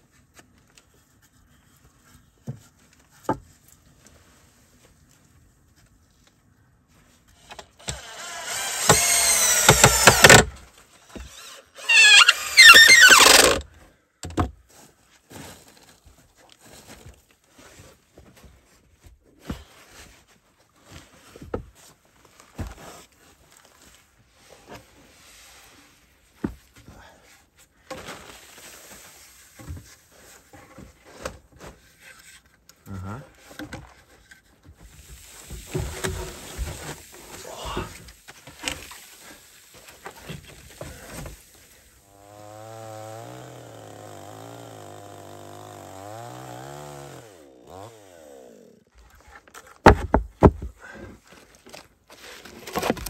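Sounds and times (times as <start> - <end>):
cordless drill driving screws: 7.8 - 10.5, 11.2 - 13.6.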